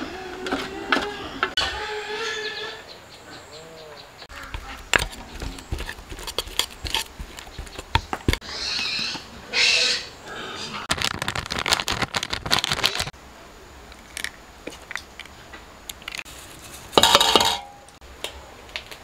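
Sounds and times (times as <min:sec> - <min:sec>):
metal spoon scraping a pot: 0:04.4 - 0:09.2.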